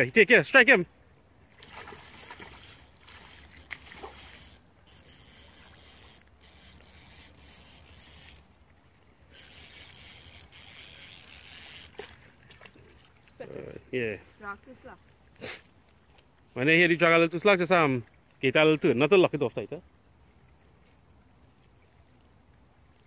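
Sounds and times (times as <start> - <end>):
fishing reel rasping: 1.6 - 12.5.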